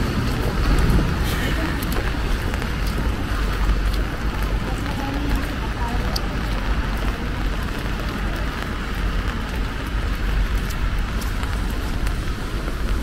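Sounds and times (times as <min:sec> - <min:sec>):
rain: 0:00.0 - 0:13.0
road traffic rumble: 0:00.0 - 0:13.0.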